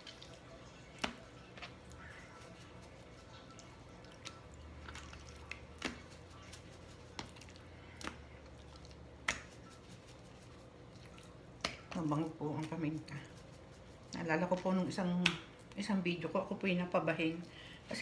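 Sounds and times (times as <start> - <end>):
faint low hum: 0.0 - 18.0
pepper shaker shaking: 9.4 - 10.8.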